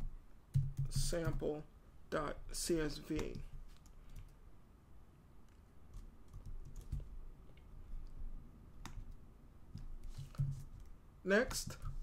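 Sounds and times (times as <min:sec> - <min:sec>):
keyboard keys tapping: 0:00.5 - 0:01.4, 0:05.9 - 0:07.1.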